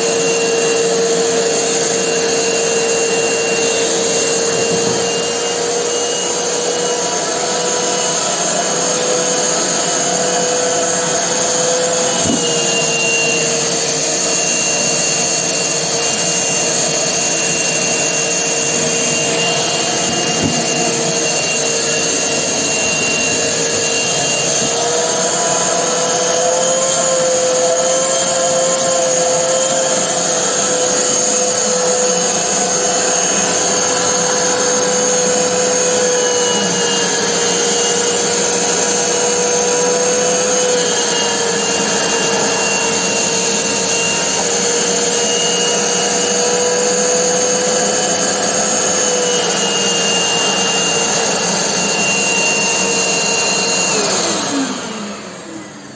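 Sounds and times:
shop vacuum whining: 0:00.0 - 0:55.9.

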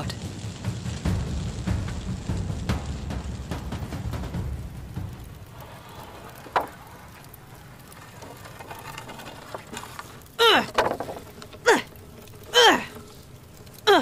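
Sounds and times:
low rumble: 0:00.0 - 0:10.4
person crying out: 0:10.4 - 0:10.8, 0:11.6 - 0:11.9, 0:12.5 - 0:13.0.

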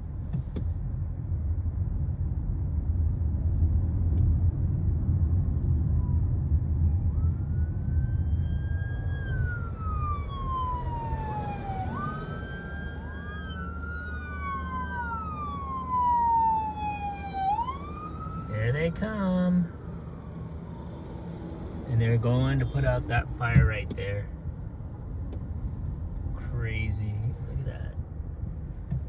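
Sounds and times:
car interior rumble: 0:00.0 - 0:16.2, 0:21.2 - 0:29.0
fire engine sirens wailing: 0:05.8 - 0:21.8.

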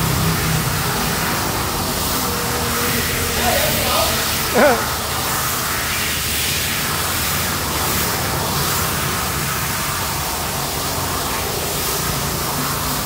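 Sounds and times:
cutting torch hissing: 0:00.3 - 0:08.2.

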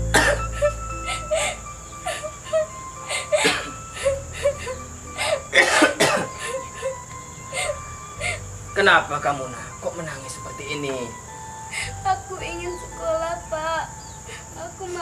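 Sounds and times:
soft background music: 0:00.0 - 0:15.0
girl sobbing: 0:00.2 - 0:08.5, 0:11.7 - 0:12.0.

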